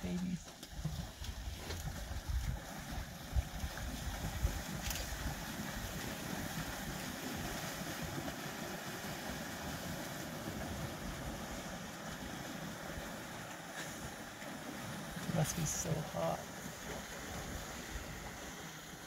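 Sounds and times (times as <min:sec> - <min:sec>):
wind buffeting microphone: 0:01.2 - 0:08.2.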